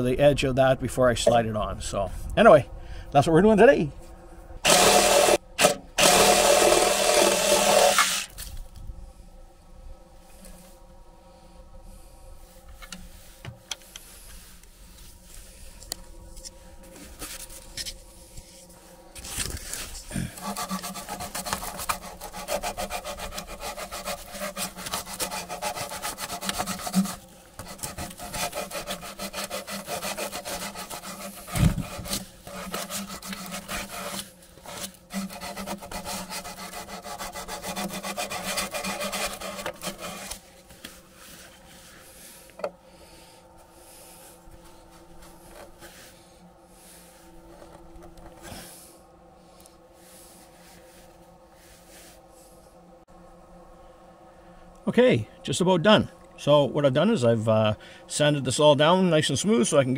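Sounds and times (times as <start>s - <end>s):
saw cutting plastic pipe: 4.6s - 8.5s, 19.2s - 41.7s.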